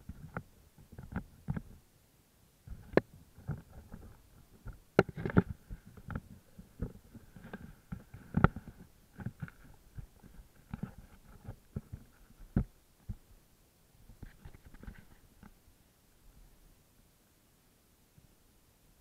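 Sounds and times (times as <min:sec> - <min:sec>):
muffled camera knocks and bumps: 0:00.0 - 0:01.8, 0:02.7 - 0:13.3.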